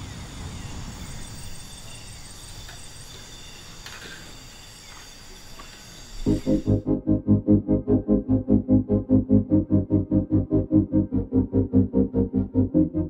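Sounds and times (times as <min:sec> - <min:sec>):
insects trilling: 0:00.0 - 0:06.8.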